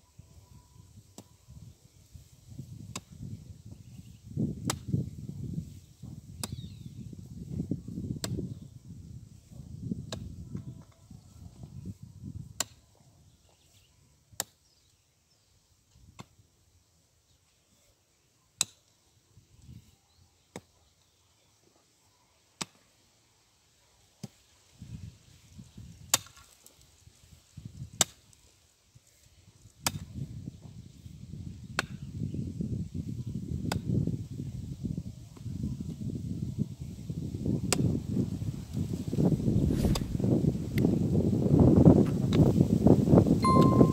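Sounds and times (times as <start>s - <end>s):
digging tool striking earth: 2.8s - 3.3s, 4.6s - 5.0s, 6.3s - 6.8s, 10.0s - 10.3s, 12.5s - 12.8s, 26.1s - 26.6s, 29.8s - 30.1s, 39.7s - 40.2s.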